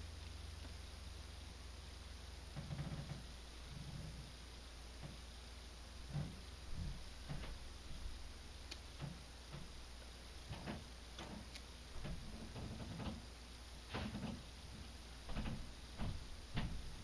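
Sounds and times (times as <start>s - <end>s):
low steady hum: 0.0s - 17.0s
soft ticks and knocks: 2.5s - 4.3s, 6.1s - 8.1s, 8.9s - 9.8s, 10.4s - 13.3s, 13.9s - 17.0s.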